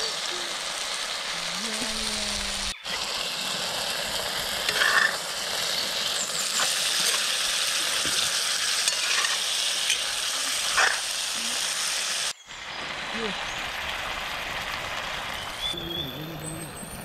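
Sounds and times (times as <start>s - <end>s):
food sizzling in hot oil: 0.0s - 15.8s
spatula scraping a pan: 4.6s - 5.2s, 6.5s - 11.1s.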